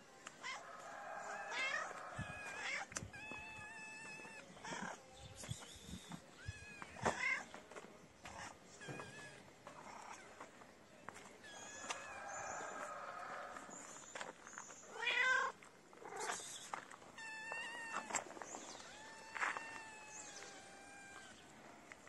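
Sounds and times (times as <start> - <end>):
kitten meowing: 18.8 - 21.4.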